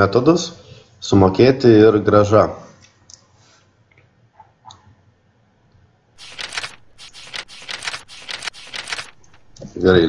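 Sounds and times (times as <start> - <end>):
computer keyboard typing: 6.2 - 9.7.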